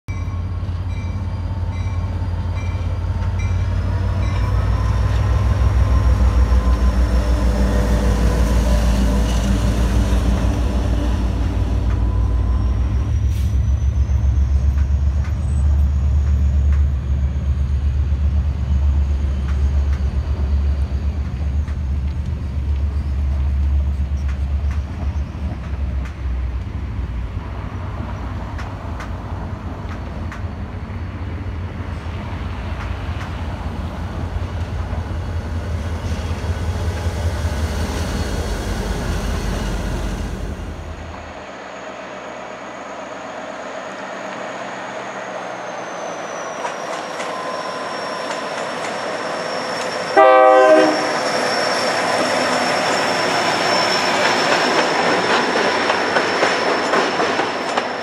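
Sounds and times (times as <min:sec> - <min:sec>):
diesel locomotive engine rumble: 0:00.1 - 0:58.0
train wheels clicking over rail joints: 0:14.2 - 0:17.1, 0:46.6 - 0:47.4, 0:48.2 - 0:50.1, 0:51.2 - 0:58.0.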